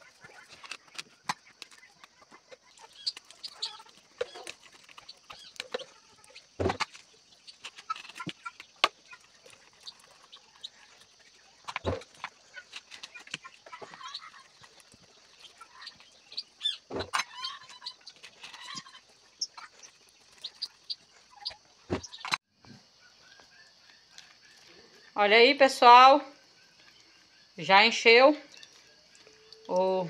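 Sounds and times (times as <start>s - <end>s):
spoon scraping fruit pulp: 0.0s - 22.2s.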